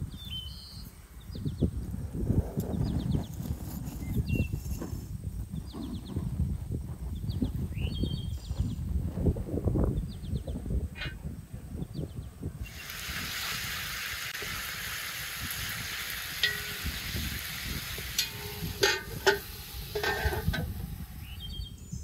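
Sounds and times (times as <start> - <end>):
chicken sizzling in hot oil: 12.6 - 21.5
metal lid clanking onto pan: 16.4 - 17.0, 18.0 - 20.8
wooden spatula scraping a pan: 18.2 - 20.7.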